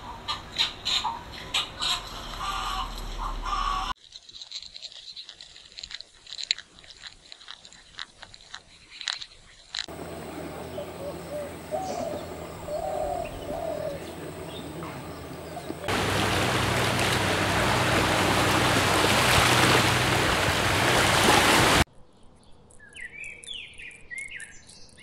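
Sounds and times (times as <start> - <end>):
dense crackling and ticking: 4.0 - 9.9
warbled bird calls: 9.9 - 21.2
outdoor hiss: 9.9 - 21.9.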